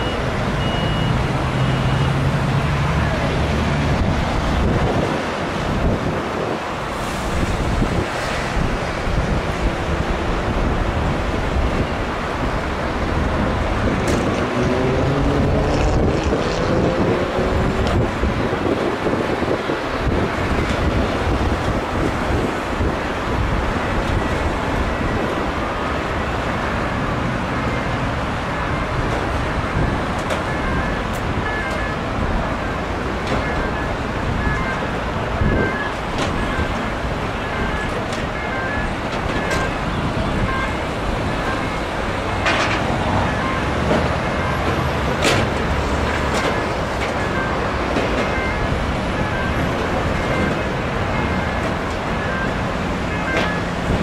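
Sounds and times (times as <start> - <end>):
faint short high beeps: 0.0 - 2.2
motorway traffic: 0.0 - 54.0
wind buffeting microphone: 3.9 - 25.7
vehicle engine passing by: 14.4 - 18.0.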